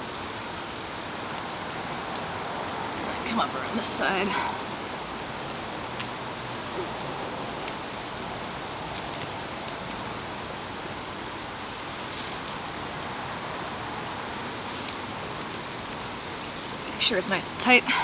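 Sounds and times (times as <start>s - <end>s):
clicks and rustles of twine: 0.7s - 2.3s, 5.1s - 6.2s, 8.6s - 10.1s, 11.3s - 13.0s, 14.0s - 17.1s.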